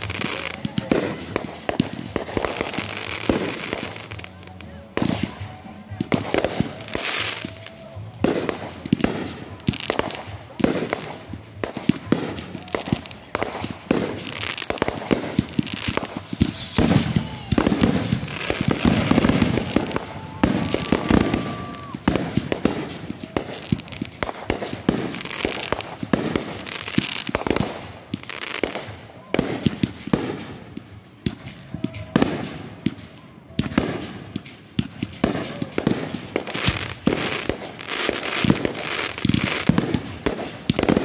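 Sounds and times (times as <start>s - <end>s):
fireworks bangs and crackles: 0.0s - 41.0s
falling firework whistle: 15.2s - 23.7s.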